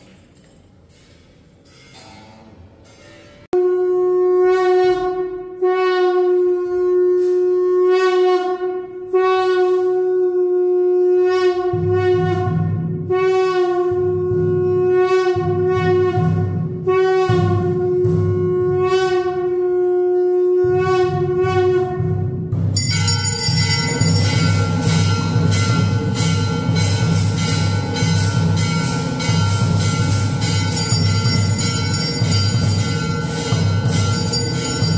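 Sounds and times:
conch shell blasts: 3.6s - 34.9s
low rhythmic drumbeat: 21.2s - 34.9s
temple bells ringing: 22.8s - 34.9s.

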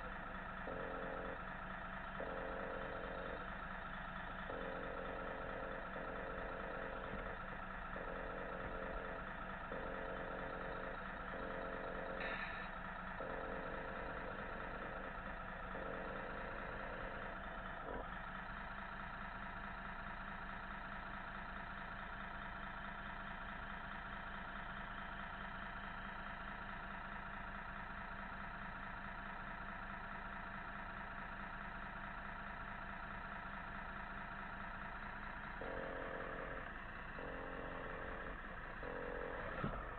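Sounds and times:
pulsing lower tone: 0.0s - 3.6s, 4.4s - 18.1s, 35.6s - 39.9s
diesel engine idle sound: 0.0s - 39.9s.

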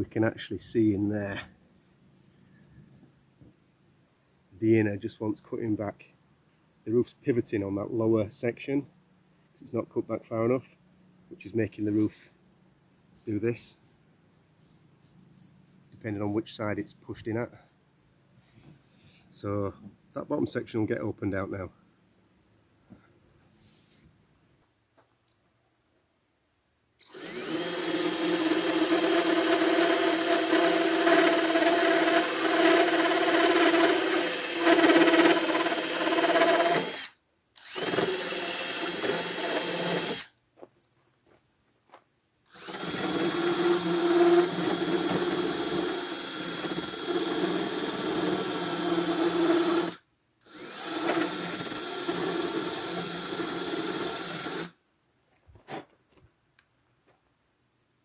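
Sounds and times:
cordless drill grinding fibreglass: 27.0s - 40.3s, 42.5s - 54.8s.

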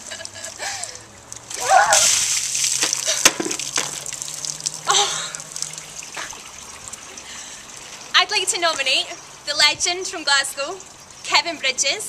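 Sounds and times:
water gushing and splashing: 0.0s - 9.5s
person crying out: 1.6s - 2.0s, 4.9s - 5.4s.

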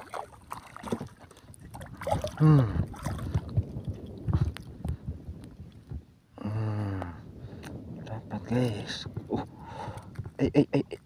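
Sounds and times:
fish splashing in water: 0.0s - 3.5s
water sloshing: 0.0s - 4.7s.

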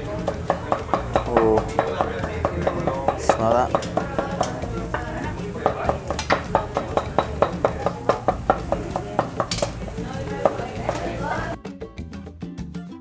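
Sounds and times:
cleaver chopping meat on wooden block: 0.0s - 11.3s.

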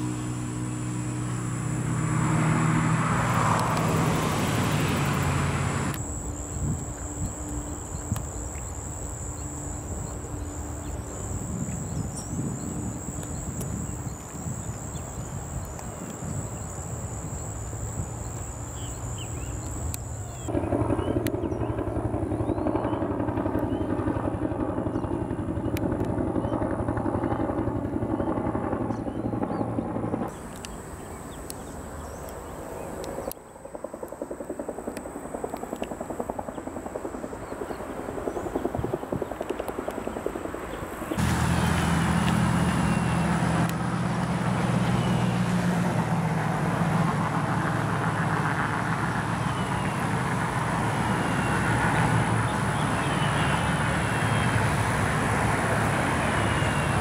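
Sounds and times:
vehicle passing by: 0.0s - 6.0s, 41.2s - 57.0s
engine drone: 0.0s - 32.2s, 41.0s - 57.0s
steady high whine: 0.0s - 36.4s.

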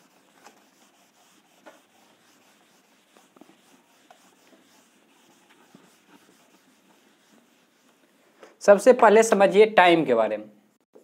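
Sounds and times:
taps and scratches on board: 1.6s - 2.0s.

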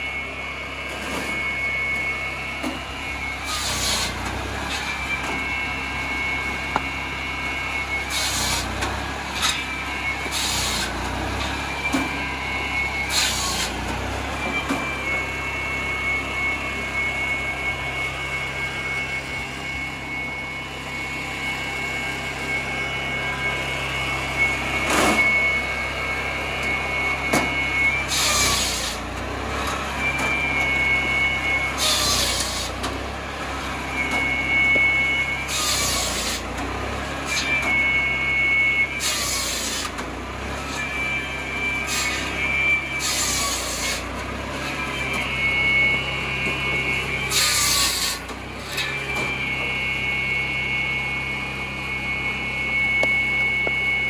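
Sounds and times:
circular saw whining: 0.0s - 54.0s
saw blade cutting logs: 2.6s - 5.5s, 7.8s - 15.1s, 26.6s - 33.0s, 33.9s - 50.7s.

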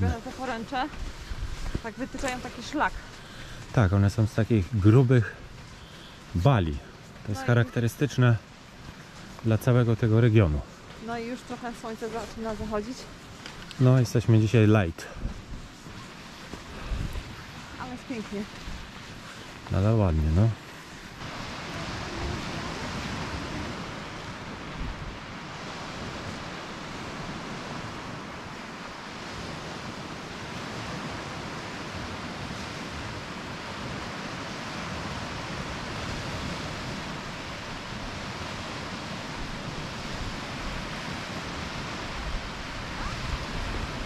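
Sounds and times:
wind on microphone: 0.0s - 3.1s, 15.0s - 19.7s, 21.1s - 44.0s
surf washing onto beach: 0.0s - 44.0s.

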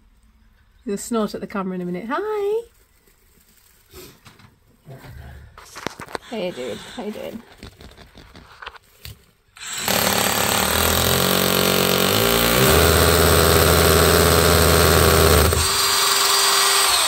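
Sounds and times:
power drill boring into wall: 6.2s - 7.2s, 9.6s - 17.0s.

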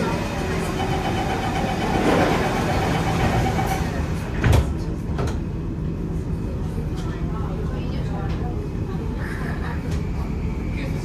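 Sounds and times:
metro train rumbling: 0.0s - 11.0s.

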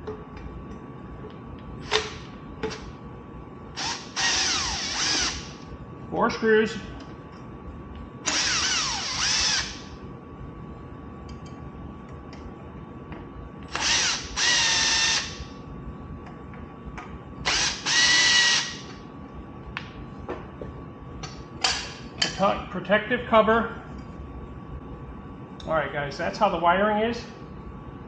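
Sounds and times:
cordless drill running: 3.8s - 5.6s, 8.3s - 9.9s, 13.7s - 15.4s, 17.5s - 18.9s.

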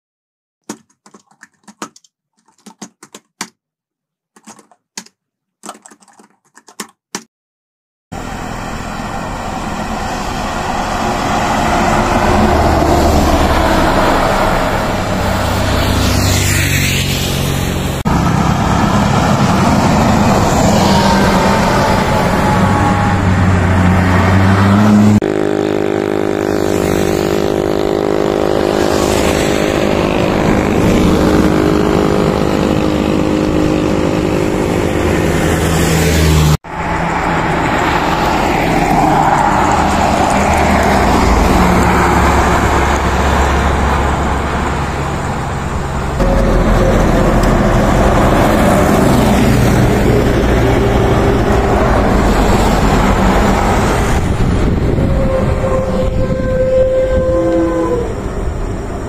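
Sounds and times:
short clicks and bursts: 0.6s - 3.6s, 4.4s - 7.3s
diesel buses passing: 8.2s - 59.0s
truck engine passing: 8.2s - 59.0s.

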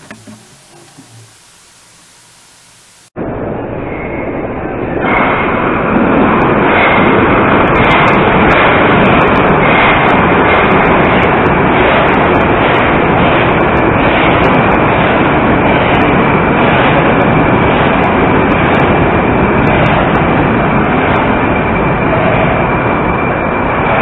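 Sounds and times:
faint high whine: 0.0s - 6.2s
train wheels rumbling: 4.6s - 24.0s.

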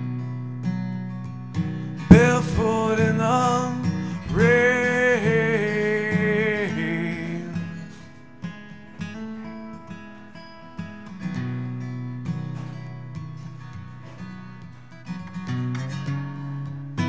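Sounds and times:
acoustic guitar: 0.0s - 17.0s
man singing a held note: 2.1s - 7.8s.

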